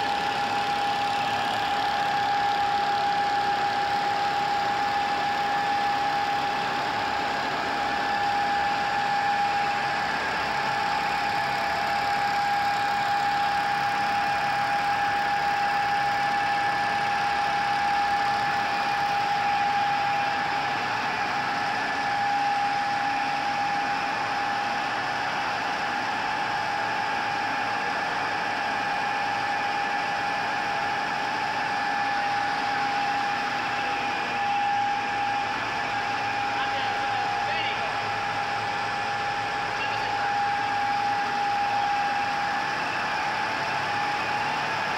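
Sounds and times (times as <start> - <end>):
high-pitched machine whine: 0.0 - 44.9
printing press running: 0.0 - 44.9.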